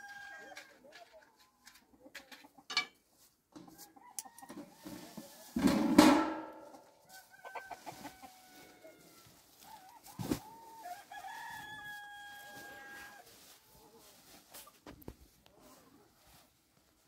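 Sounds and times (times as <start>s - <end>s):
rooster crowing: 0.0s - 0.6s, 7.2s - 9.3s, 10.7s - 13.2s
chicken calls: 6.6s - 14.8s.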